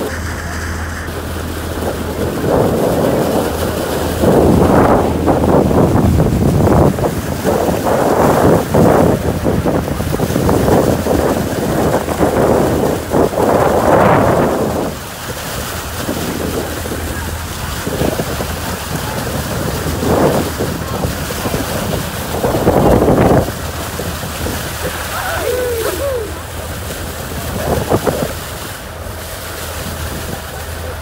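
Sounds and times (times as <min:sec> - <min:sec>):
boat motor humming: 0:00.0 - 0:31.0
water rushing and splashing: 0:00.0 - 0:31.0
wind buffeting microphone: 0:00.0 - 0:31.0.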